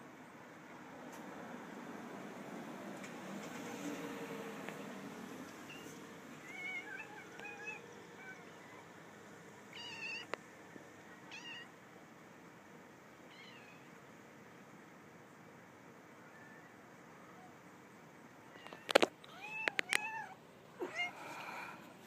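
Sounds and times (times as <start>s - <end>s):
cat meowing: 6.4s - 8.9s, 9.7s - 10.4s, 11.3s - 11.7s, 13.3s - 13.9s, 18.5s - 21.7s.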